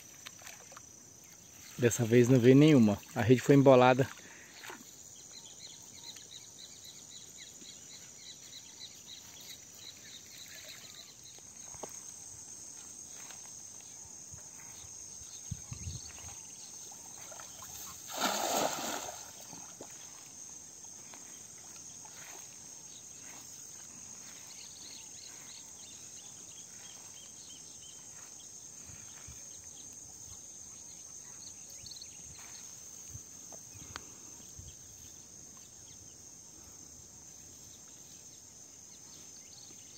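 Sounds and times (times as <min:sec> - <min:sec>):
insects chirring: 0:00.0 - 0:39.9
short loud water splash: 0:17.6 - 0:19.6.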